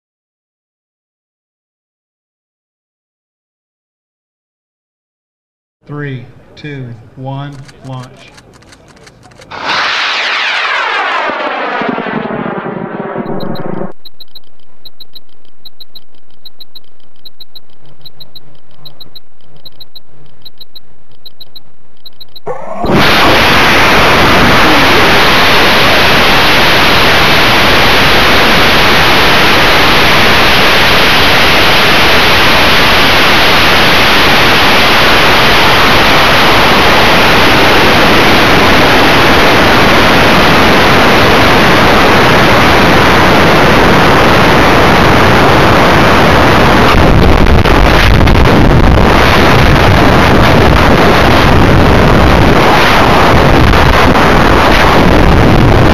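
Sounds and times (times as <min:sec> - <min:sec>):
rocket motor rushing: 0:08.5 - 0:14.0, 0:22.5 - 0:42.2
faint electronic beeps: 0:13.2 - 0:22.6.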